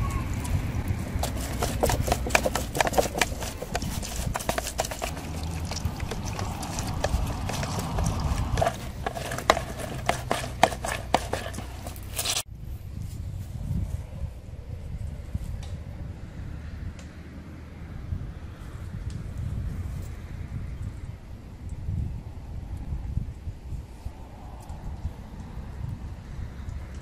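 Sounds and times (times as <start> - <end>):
plastic juicer clicks and knocks: 1.2 - 12.0.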